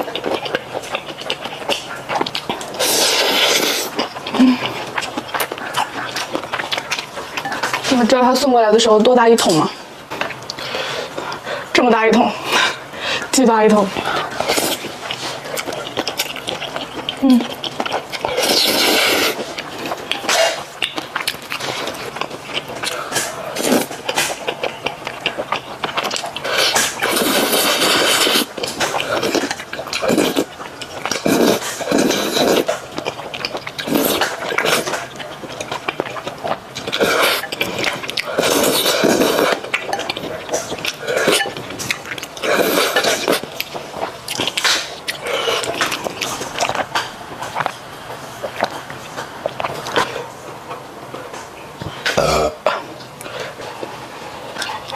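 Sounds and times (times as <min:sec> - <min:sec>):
slurping noodles: 0:00.0 - 0:06.5, 0:14.0 - 0:47.6
wet chewing smacks: 0:00.0 - 0:54.9
person slurping noodles: 0:02.8 - 0:04.7, 0:18.2 - 0:19.6, 0:26.4 - 0:30.5, 0:31.1 - 0:32.8, 0:33.8 - 0:35.0, 0:37.0 - 0:39.7, 0:42.4 - 0:43.4.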